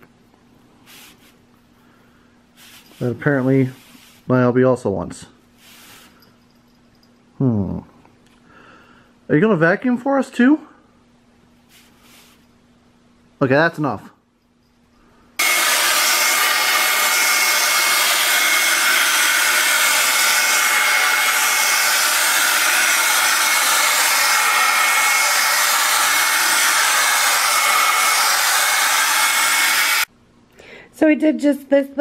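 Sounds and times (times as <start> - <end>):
carpet cleaner whirring with whine: 15.4 - 30.1.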